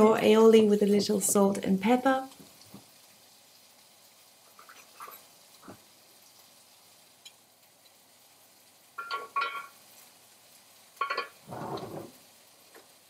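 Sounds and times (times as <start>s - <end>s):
kitchenware clatter: 9.0s - 9.8s, 11.0s - 12.2s
kitchenware clinking: 9.0s - 9.8s, 11.0s - 12.1s.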